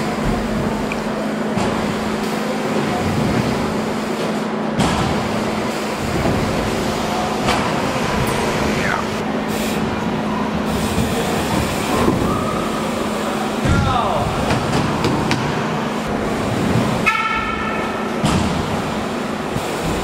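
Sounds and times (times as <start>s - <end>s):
bike tyres rolling on wooden ramps: 0.0s - 8.9s
constant hall hum: 0.0s - 20.0s.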